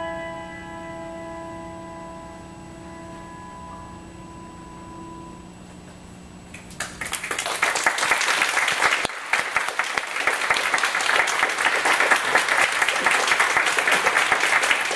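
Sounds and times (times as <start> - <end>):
audience applause: 6.7 - 14.9.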